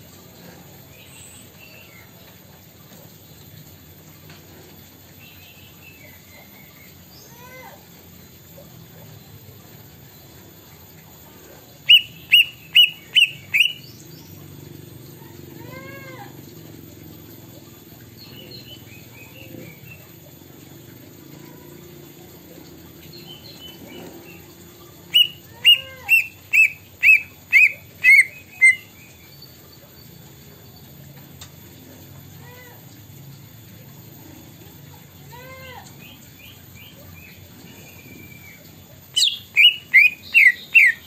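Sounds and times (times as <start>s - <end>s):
soft bird chirps: 11.3s - 14.5s, 22.4s - 30.6s, 36.0s - 41.0s
bird whistling sharp notes: 25.2s - 28.9s, 39.2s - 41.0s.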